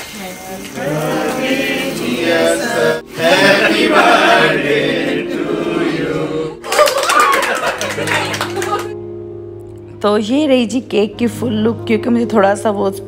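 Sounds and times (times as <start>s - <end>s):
people singing: 0.6s - 6.6s.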